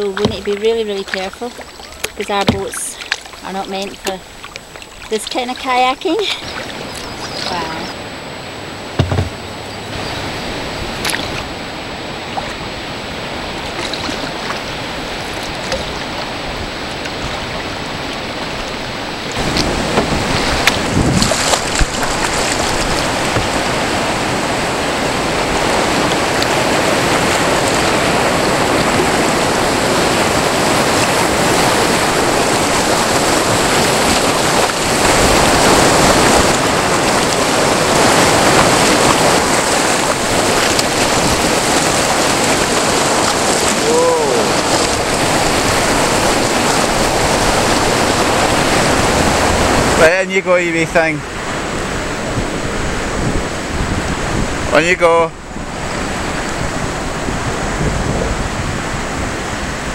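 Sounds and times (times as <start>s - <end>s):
white water roaring: 0.0s - 59.9s
short knocks: 9.0s - 9.5s.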